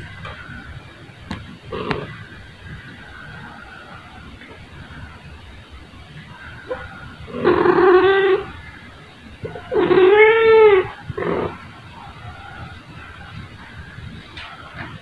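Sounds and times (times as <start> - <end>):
cat meowing: 6.8 - 8.6, 9.4 - 11.0.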